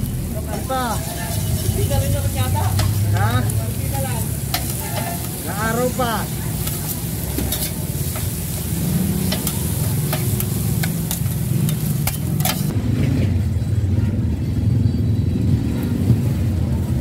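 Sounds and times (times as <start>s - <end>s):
meat sizzling on a griddle: 0.0s - 12.7s
low engine rumble: 0.0s - 17.0s
metal scrapers clacking on griddle: 0.5s - 12.7s.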